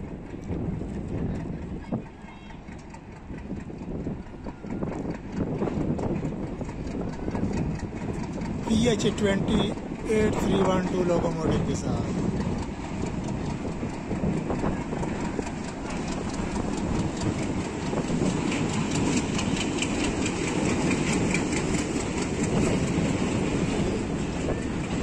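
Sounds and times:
diesel locomotive passing: 0:00.0 - 0:25.0
train low rumble: 0:00.0 - 0:25.0
wheels clicking over rail joints: 0:00.0 - 0:25.0.

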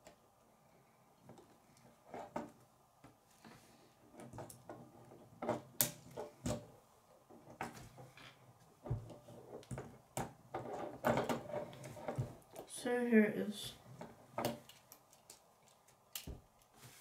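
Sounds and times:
plastic parts clicking: 0:14.4 - 0:16.7.

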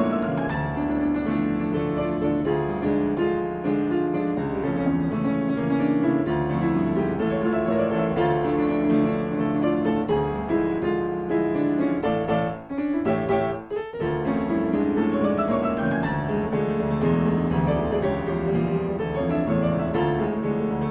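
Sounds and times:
piano music: 0:00.0 - 0:20.9.

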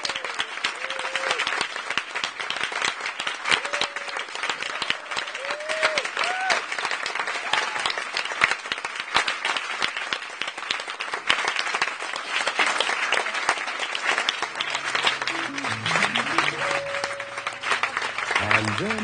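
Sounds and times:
audience applauding: 0:00.0 - 0:19.0
low instrumental notes: 0:14.6 - 0:18.2.

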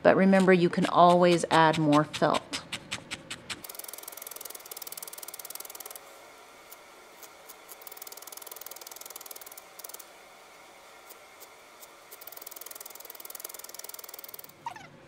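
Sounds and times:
felting needle stabbing wool: 0:00.2 - 0:05.0.

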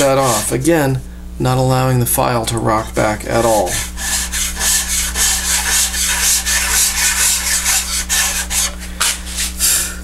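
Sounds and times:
file scraping wood: 0:00.0 - 0:00.6, 0:03.3 - 0:09.6.

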